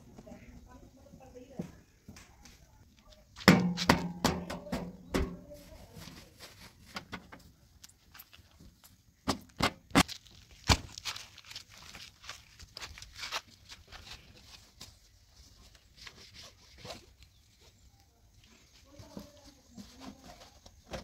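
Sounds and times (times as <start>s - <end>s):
knocks against metal panels: 3.4s - 5.5s.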